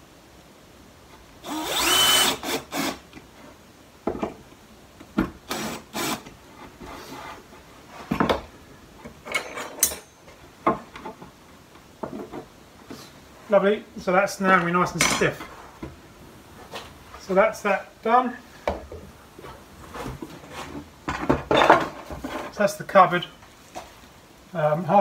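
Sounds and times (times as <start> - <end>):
drill driving screws: 1.4 - 3.0, 5.4 - 6.3.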